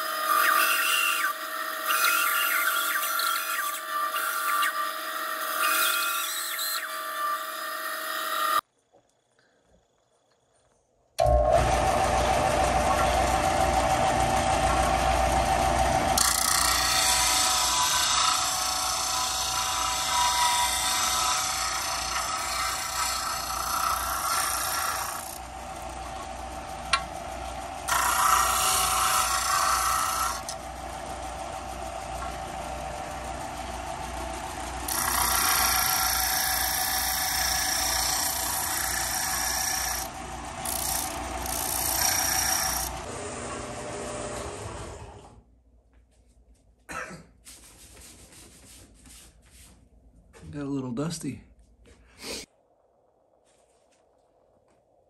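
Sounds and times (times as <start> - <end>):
disc sander motor hum: 11.2 - 45.4.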